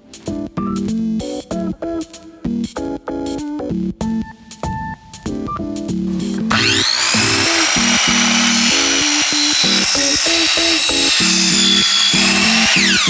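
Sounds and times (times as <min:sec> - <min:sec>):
background music: 0:00.0 - 0:13.0
miter saw whine cutting metal: 0:06.5 - 0:13.0.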